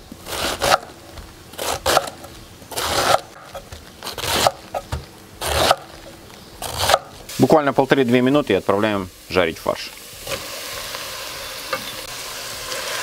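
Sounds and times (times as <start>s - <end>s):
knife crunching through cabbage: 0.2s - 7.2s.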